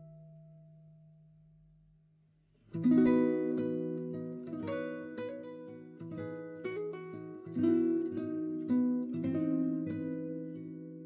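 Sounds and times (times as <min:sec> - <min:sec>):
plucked string instrument: 0:02.6 - 0:11.0.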